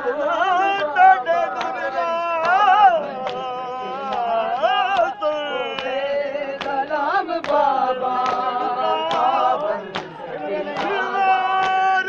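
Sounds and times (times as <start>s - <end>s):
man singing a lament: 0.0s - 12.0s
crowd beating chests: 2.4s - 12.0s.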